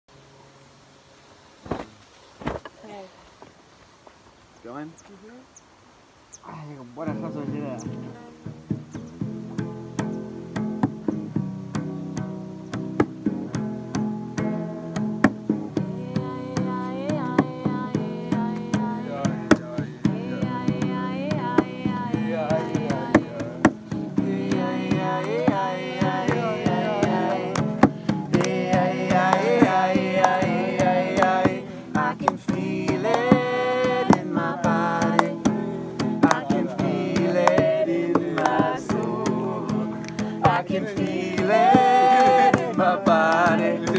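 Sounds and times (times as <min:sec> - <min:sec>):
acoustic guitar strumming: 0:07.0 - 0:43.9
person singing: 0:15.7 - 0:43.9.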